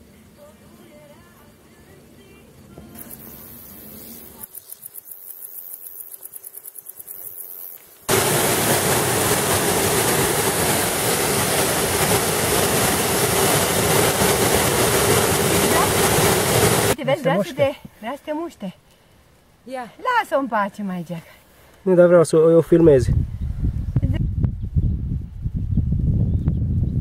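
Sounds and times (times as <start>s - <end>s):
waterfall roaring: 8.1s - 17.6s.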